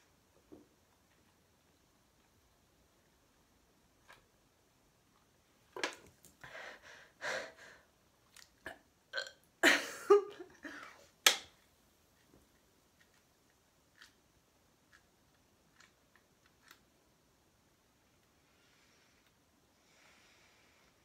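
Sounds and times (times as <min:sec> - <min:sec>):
woman burping: 0:08.6 - 0:10.8.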